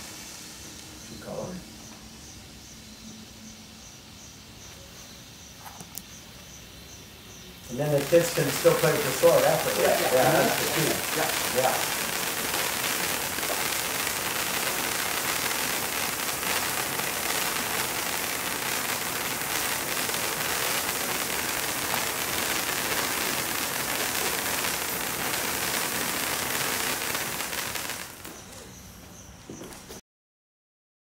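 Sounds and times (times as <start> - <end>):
spark fountain hissing: 0.0 - 2.9, 7.6 - 28.7.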